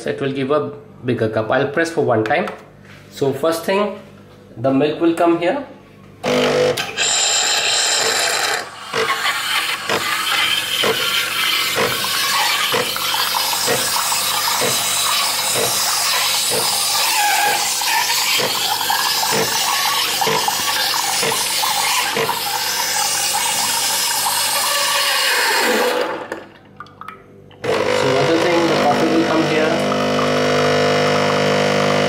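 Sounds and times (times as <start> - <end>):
coffee machine frothing milk: 6.2 - 26.5, 27.6 - 32.0.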